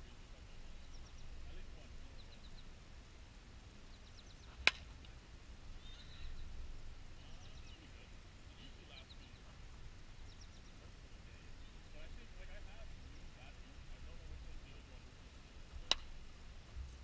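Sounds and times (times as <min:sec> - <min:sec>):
faint high chirps: 0:05.8 - 0:06.6.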